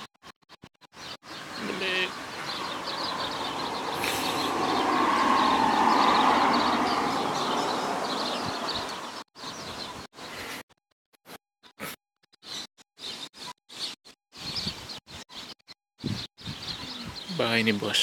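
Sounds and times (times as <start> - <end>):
small birds chirping: 0.0 - 10.6, 11.6 - 18.0
passing vehicle road noise: 1.4 - 9.2.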